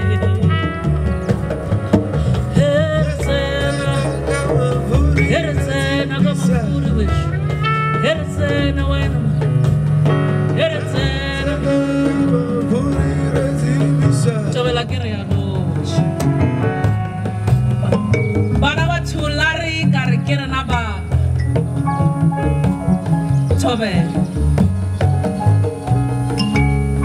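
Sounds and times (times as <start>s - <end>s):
live band playing jazz: 0.0s - 27.0s
low bass line: 0.0s - 27.0s
person singing: 2.3s - 7.4s, 10.5s - 16.2s.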